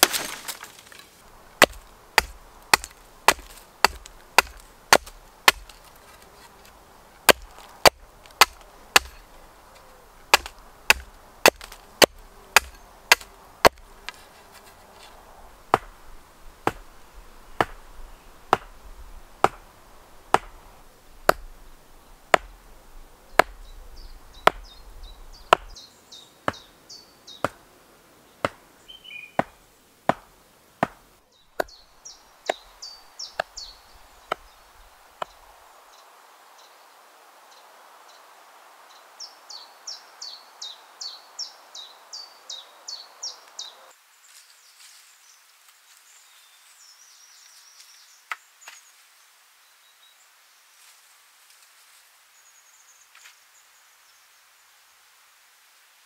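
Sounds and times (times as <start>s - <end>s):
axe chopping wood: 0.0s - 1.0s, 1.6s - 14.8s, 15.7s - 16.9s, 17.6s - 17.9s, 18.5s - 18.8s, 19.4s - 19.7s, 20.3s - 21.6s, 22.3s - 22.6s, 23.4s - 23.6s, 24.4s - 24.7s, 25.5s - 25.8s, 26.5s - 26.7s, 28.4s - 28.6s, 29.4s - 31.0s, 31.6s - 31.8s, 33.4s - 33.6s, 34.2s - 34.5s
faint birdsong: 0.0s - 51.2s, 51.8s - 55.1s.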